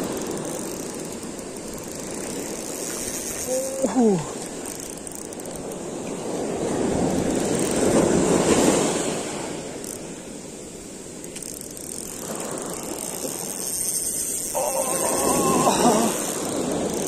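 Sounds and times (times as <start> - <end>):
ocean surf washing up beach: 0.0 - 17.0
wind on microphone: 5.4 - 10.9, 11.7 - 17.0.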